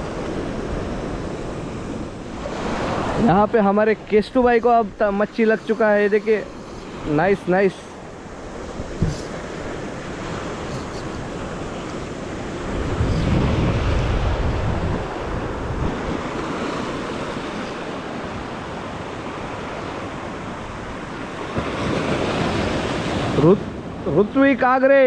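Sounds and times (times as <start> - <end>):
waves breaking over rocks: 4.5 - 24.0
wind buffeting microphone: 8.0 - 24.0.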